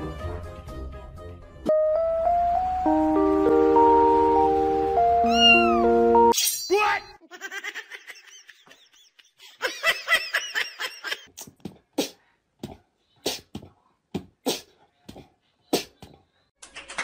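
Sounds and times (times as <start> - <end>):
person laughing: 7.2 - 11.3.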